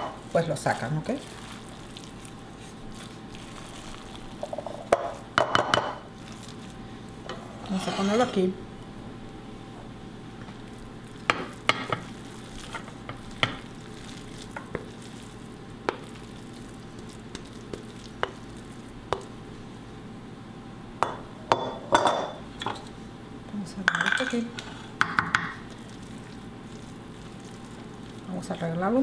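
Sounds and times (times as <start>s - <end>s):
wooden spoon scraping glass bowl: 7.3s - 8.5s.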